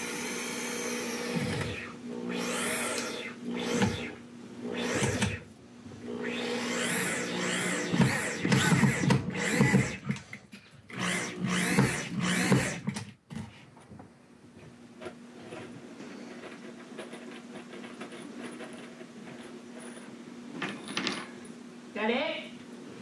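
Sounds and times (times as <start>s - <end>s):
cordless drill running: 0.0s - 5.5s, 6.1s - 10.2s, 10.9s - 13.0s.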